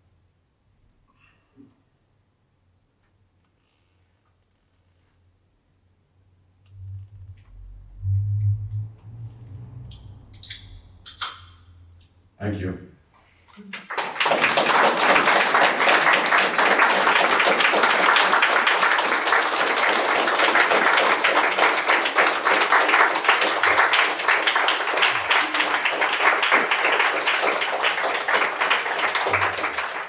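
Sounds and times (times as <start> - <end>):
audience applauding: 13.6 - 30.0.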